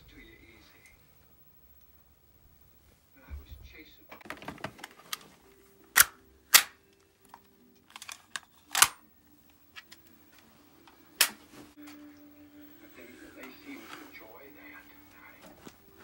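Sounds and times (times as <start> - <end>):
air pistol mechanical clicks: 5.9 - 6.8, 7.8 - 9.0.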